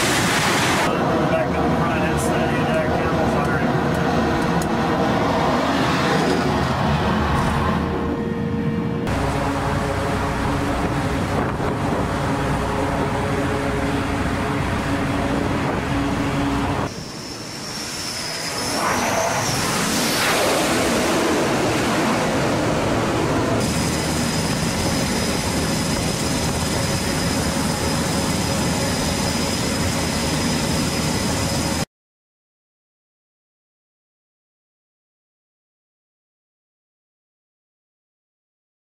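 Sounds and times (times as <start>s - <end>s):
jet passing: 0.0s - 31.8s
jet engine rush and whine: 0.0s - 31.9s.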